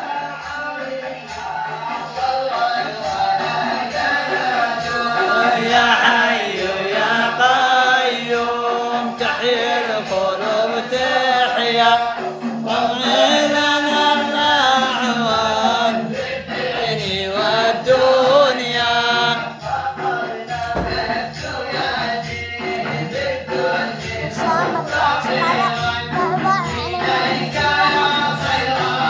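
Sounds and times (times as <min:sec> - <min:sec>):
man chanting a devotional hymn: 0:04.7 - 0:20.0.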